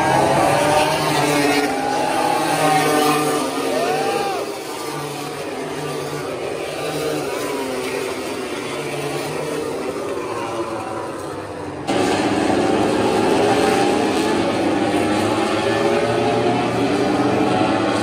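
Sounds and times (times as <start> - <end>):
racing motorcycle engines: 0.0 - 18.0.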